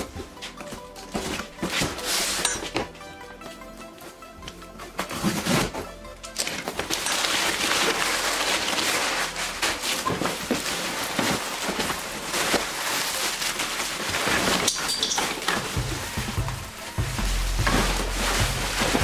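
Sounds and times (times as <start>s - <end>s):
cardboard rustling: 0.0s - 3.6s, 4.9s - 19.0s
plastic wrap crinkling: 6.4s - 19.0s.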